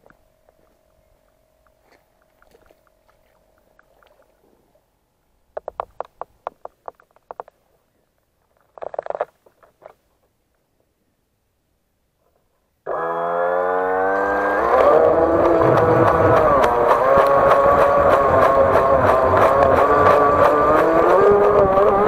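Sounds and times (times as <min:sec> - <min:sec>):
faint steady tone: 0:00.0 - 0:05.6
knocks and clicks: 0:05.6 - 0:07.6.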